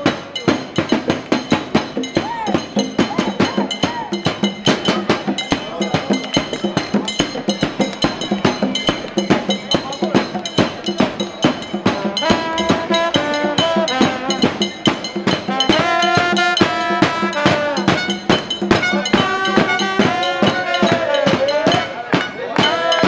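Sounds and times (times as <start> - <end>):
bass drum beats: 0.0 - 23.0
trumpets playing: 11.6 - 23.0.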